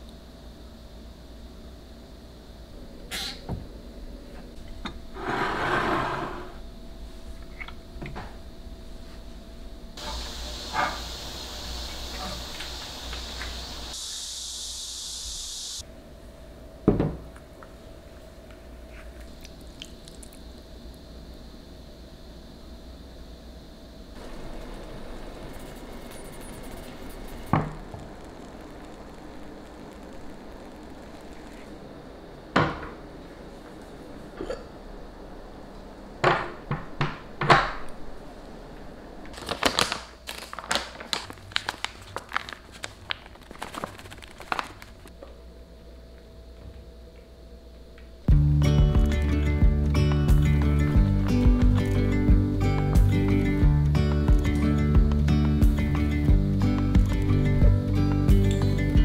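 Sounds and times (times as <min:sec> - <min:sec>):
steady hiss: 0:00.0 - 0:59.0.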